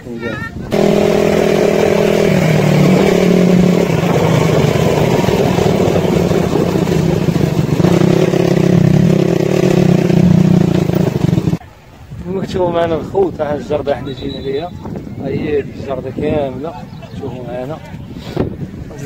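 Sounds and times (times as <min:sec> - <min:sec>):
motorcycle engine running: 0:00.7 - 0:11.6.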